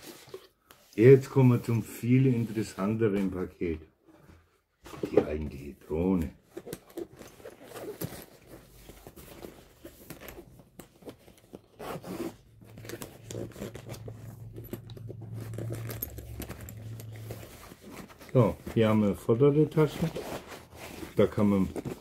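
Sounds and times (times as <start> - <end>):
buckle and zipper clicks: 6.6 - 18.4
nylon fabric rustling: 6.6 - 22.0
low steady hum: 12.6 - 18.8.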